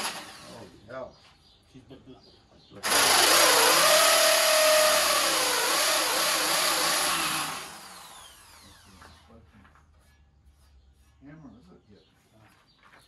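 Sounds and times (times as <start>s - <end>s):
power tool motor whining: 0.0s - 0.7s, 2.8s - 9.1s.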